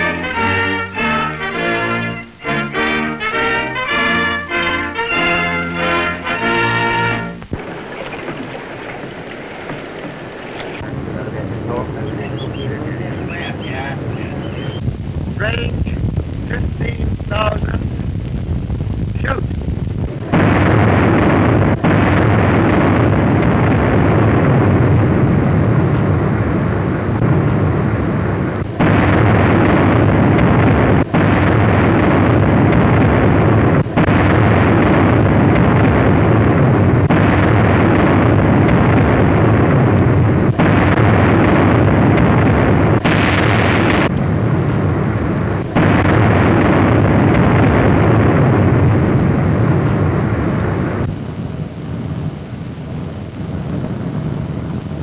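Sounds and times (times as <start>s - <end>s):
heavy guns firing: 0.0s - 10.8s, 20.0s - 25.0s, 28.7s - 50.1s.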